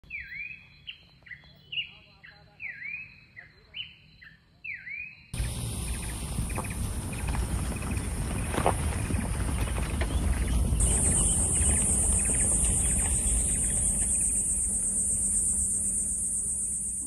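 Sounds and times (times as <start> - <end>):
car engine and tyres rumbling: 5.4 - 17.0
high insect buzz: 10.8 - 17.0.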